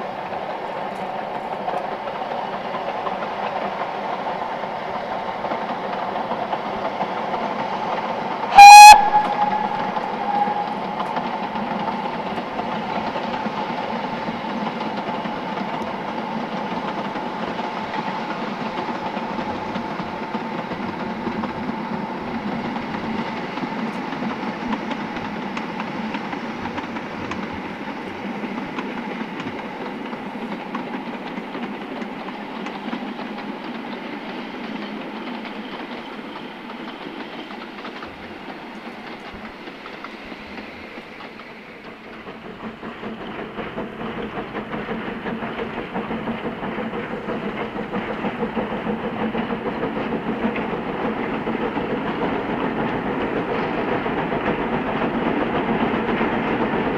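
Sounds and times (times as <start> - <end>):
steam train running: 0.0 - 56.9.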